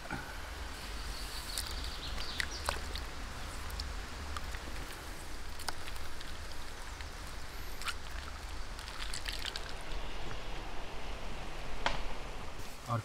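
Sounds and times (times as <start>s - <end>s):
small water splashes: 1.4s - 10.4s
ice clicking: 1.5s - 10.0s.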